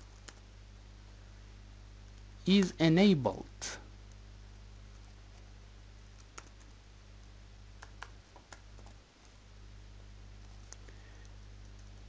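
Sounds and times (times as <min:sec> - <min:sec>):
steady low hum: 0:00.0 - 0:12.0
faint keyboard keystrokes: 0:06.1 - 0:06.8, 0:07.8 - 0:09.4, 0:10.4 - 0:12.0.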